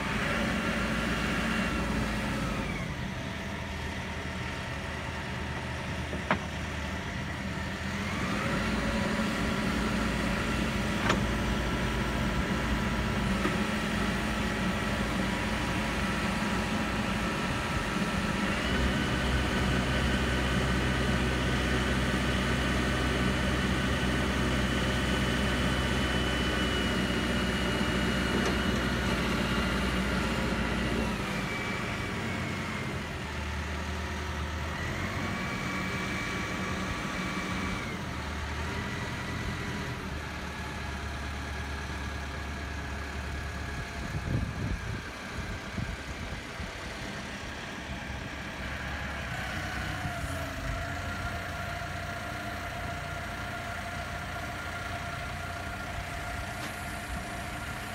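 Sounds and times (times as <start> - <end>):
diesel engine running: 0.0 - 57.9
hydraulics working: 23.2 - 33.8, 44.2 - 57.9.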